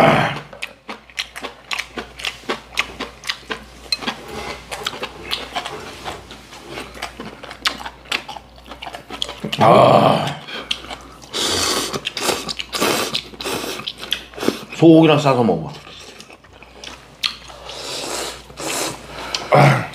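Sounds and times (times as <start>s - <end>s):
chewing noises: 0.2s - 19.5s.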